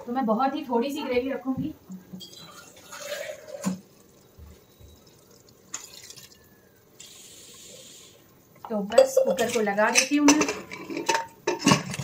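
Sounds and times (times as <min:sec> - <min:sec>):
water pouring into pot: 0:02.2 - 0:08.5.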